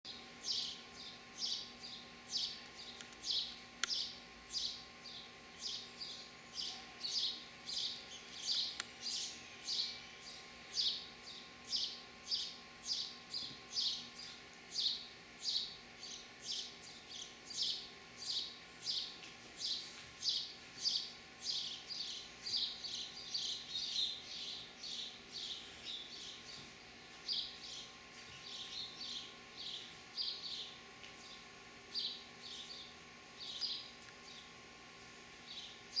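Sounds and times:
sparrow chirping: 0.1s - 26.6s, 27.2s - 34.4s.

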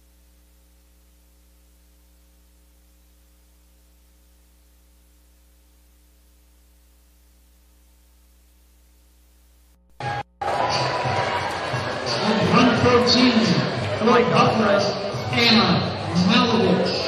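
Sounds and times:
static hiss: 0.0s - 9.8s
faint electrical mains hum: 0.0s - 9.9s.

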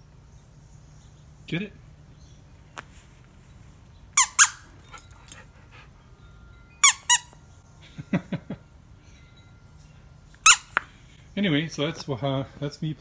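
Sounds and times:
dog toy squeaker squeaks: 4.2s - 5.0s, 6.8s - 7.4s, 10.4s - 10.8s.

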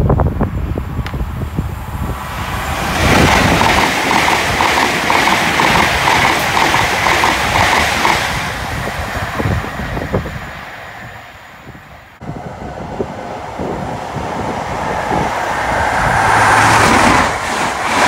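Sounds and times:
train wheels rushing on rail: 0.0s - 18.0s
wheelsets clicking over track: 3.1s - 8.4s.

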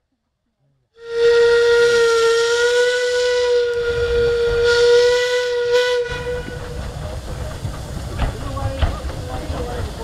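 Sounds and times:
steam locomotive whistle: 1.0s - 6.7s
steam hissing: 1.2s - 10.0s.

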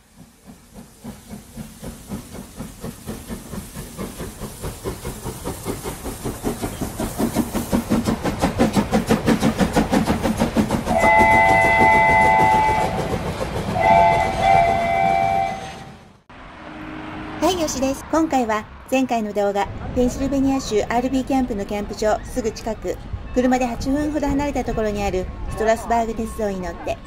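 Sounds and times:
steam locomotive chuffing: 0.0s - 16.2s.

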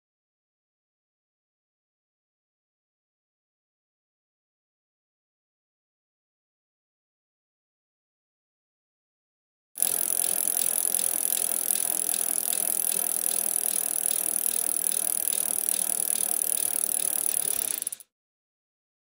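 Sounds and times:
fast clicking rattle with hiss: 9.8s - 18.0s.

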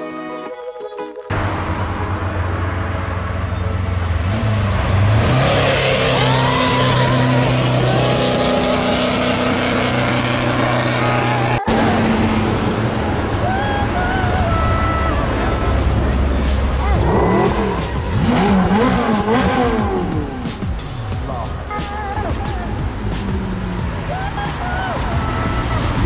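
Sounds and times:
sports cars driving past: 1.3s - 21.7s
car engine drone: 1.3s - 26.0s.

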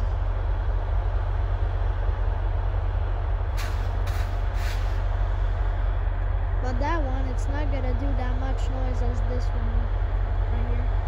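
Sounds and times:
diesel locomotive rumbling: 0.0s - 11.0s
air brakes hissing: 3.5s - 5.2s.

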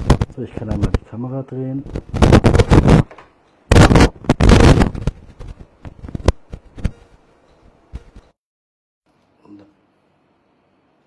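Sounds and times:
sharp clicks and pops: 0.0s - 1.0s, 1.8s - 7.0s
microphone rustling and crackling: 0.0s - 7.3s, 7.9s - 8.4s.

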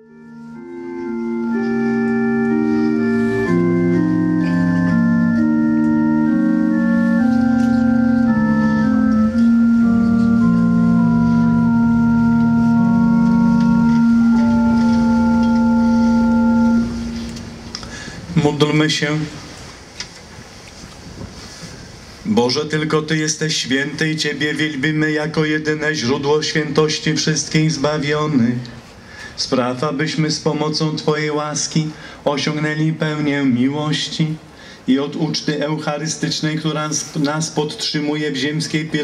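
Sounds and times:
organ playing sustained chords: 0.0s - 19.5s.

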